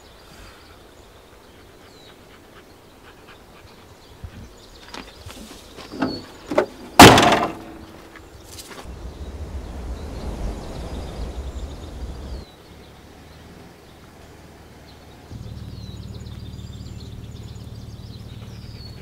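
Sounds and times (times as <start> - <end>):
low rumbling noise: 7.0 - 19.0.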